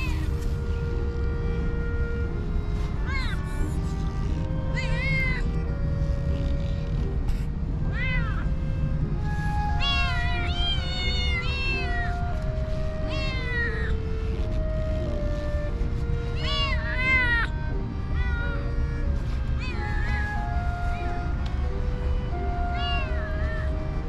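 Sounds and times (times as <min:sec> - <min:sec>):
soft background music: 0:00.0 - 0:24.0
kittens meowing: 0:03.1 - 0:03.5, 0:04.7 - 0:05.4, 0:07.9 - 0:08.5, 0:09.8 - 0:12.3, 0:13.0 - 0:14.5, 0:16.4 - 0:17.5, 0:18.2 - 0:18.7, 0:19.6 - 0:21.1, 0:22.6 - 0:23.8.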